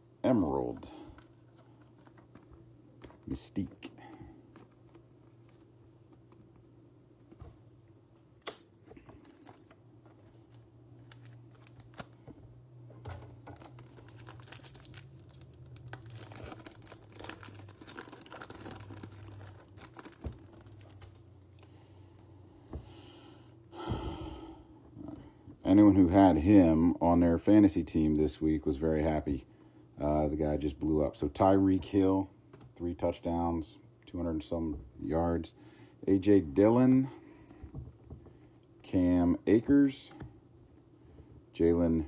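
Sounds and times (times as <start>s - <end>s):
low steady hum: 0.0s - 42.0s
foil wrapper crinkling and tearing: 11.0s - 12.2s, 13.4s - 21.2s.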